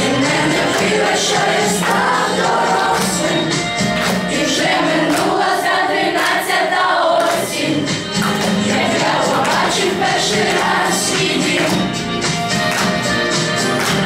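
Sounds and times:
children singing in chorus: 0:00.0 - 0:03.5, 0:04.3 - 0:07.9, 0:08.7 - 0:11.8.

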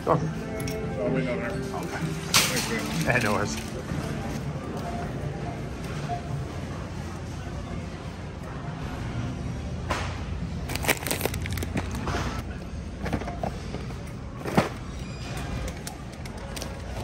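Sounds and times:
crinkling: 0:10.7 - 0:12.4.

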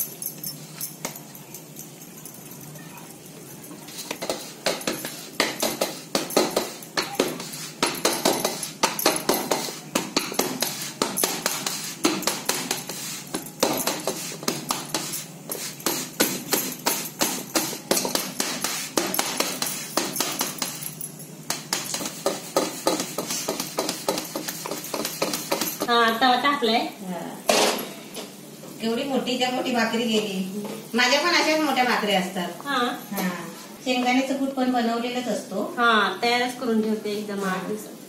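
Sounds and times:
hands slapping dough: 0:03.9 - 0:20.8, 0:21.5 - 0:25.9.

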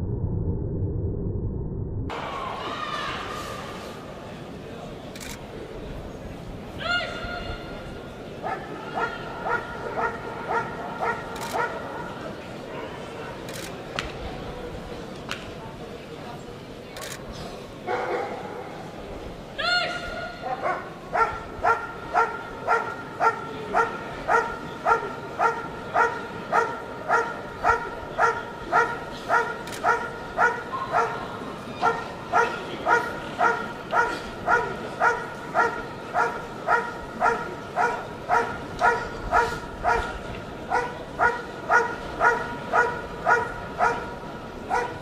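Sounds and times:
dog barking: 0:08.4 - 0:11.8, 0:17.9 - 0:18.4, 0:20.4 - 0:31.2, 0:31.8 - 0:44.1, 0:44.7 - 0:45.0.

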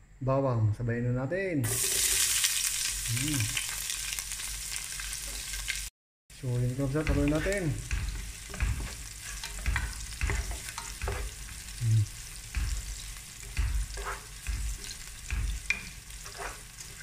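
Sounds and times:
onion and garlic sizzling in oil: 0:01.6 - 0:17.0
wooden spatula scraping a pan: 0:06.6 - 0:17.0.

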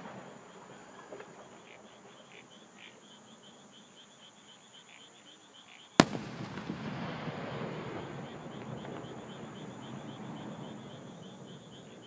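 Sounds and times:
insects and frogs chirping: 0:00.0 - 0:12.0
firework shell bursting: 0:06.0 - 0:07.8.

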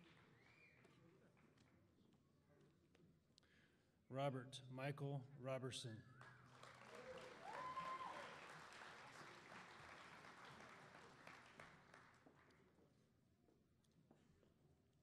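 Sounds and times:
audience clapping: 0:06.2 - 0:12.5
person whooping: 0:07.4 - 0:08.3.

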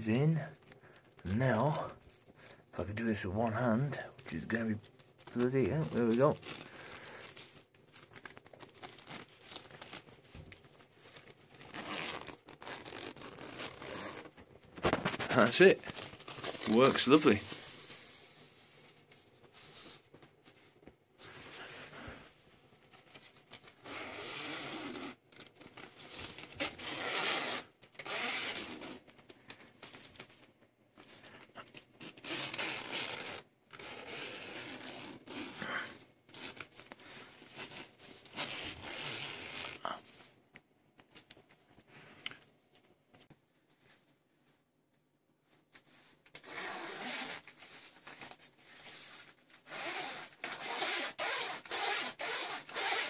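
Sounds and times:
cloth rustling: 0:03.2 - 0:40.4
zip slider rasping: 0:23.8 - 0:25.2, 0:26.6 - 0:29.0, 0:49.7 - 0:53.0.

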